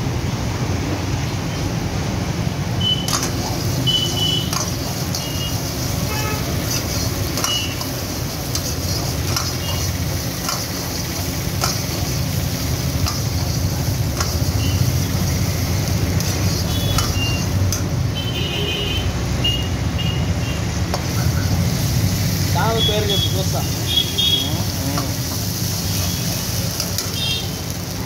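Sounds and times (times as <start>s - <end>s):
gas burner roar: 0.0s - 28.0s
onion sizzling in hot oil: 2.5s - 28.0s
metal ladle scraping a wok: 4.5s - 17.9s.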